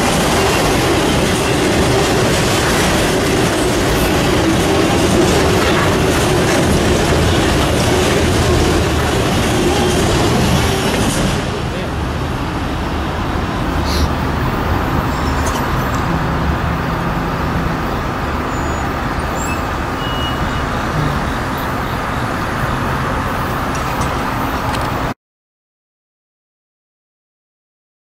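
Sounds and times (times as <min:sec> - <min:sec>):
vehicle rumble with low hum: 0:19.9 - 0:25.0.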